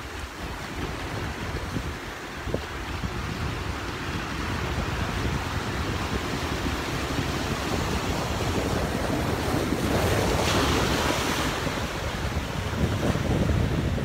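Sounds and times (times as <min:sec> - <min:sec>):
waves washing over rocks: 0:00.0 - 0:14.0
wind buffeting microphone: 0:00.0 - 0:14.0.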